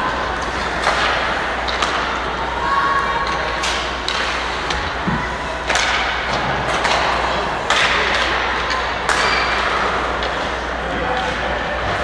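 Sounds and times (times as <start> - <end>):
sticks and puck knocks: 0.4 - 2.2, 3.2 - 9.4.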